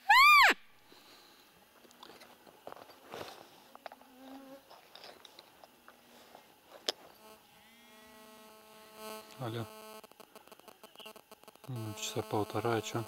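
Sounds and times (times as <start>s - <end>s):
faint rustles and clicks: 1.7s - 7.3s
insect buzzing: 3.8s - 4.8s, 6.9s - 13.0s.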